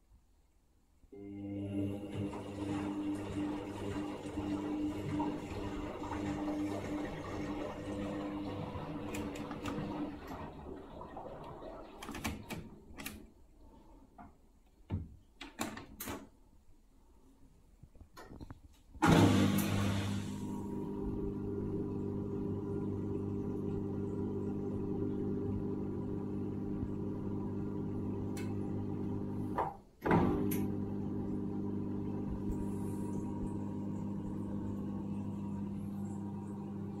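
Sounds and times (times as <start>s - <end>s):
washing machine hum: 1.1s - 16.4s, 18.9s - 37.0s
washing machine jolt: 19.0s - 20.6s.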